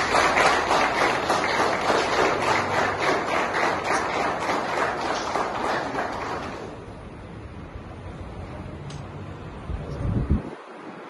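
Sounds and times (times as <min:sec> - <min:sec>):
people clapping: 0:00.0 - 0:06.9.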